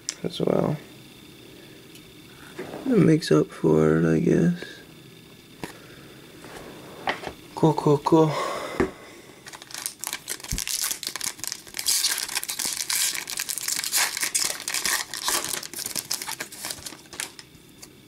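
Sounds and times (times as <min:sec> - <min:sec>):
wrapper torn open and crinkled: 0:09.5 - 0:17.9.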